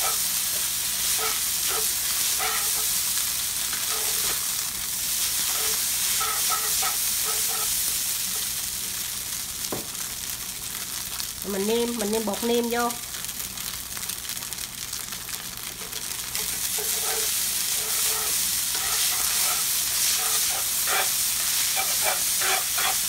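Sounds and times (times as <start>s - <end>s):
chopsticks stirring in pan: 0.0s - 8.5s, 15.6s - 23.0s
noodles sizzling in oil: 0.0s - 23.0s
knock on pan: 9.7s - 9.9s.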